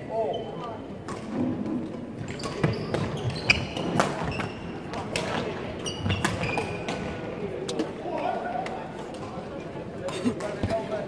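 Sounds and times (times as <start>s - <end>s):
chatter in hall: 0.0s - 11.0s
shoes squeaking: 2.2s - 4.8s, 5.8s - 6.9s.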